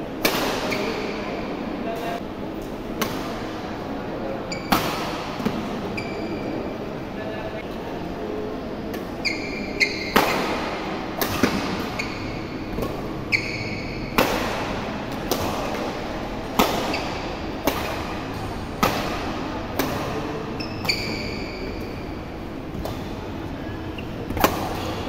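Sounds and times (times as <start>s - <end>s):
racket hitting shuttlecock: 0.2s - 1.0s, 3.0s - 3.6s, 4.5s - 5.7s, 8.9s - 23.6s, 24.3s - 25.0s
shoes squeaking on court: 4.5s - 4.8s, 5.4s - 6.6s, 9.1s - 16.0s, 16.6s - 25.0s.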